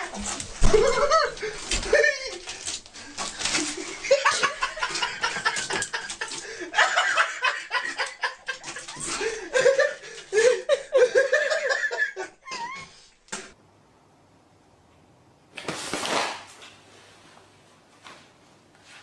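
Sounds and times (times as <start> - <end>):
person laughing: 0.0 - 2.6, 3.3 - 13.0
plastic bottles knocking and rattling: 0.0 - 10.7.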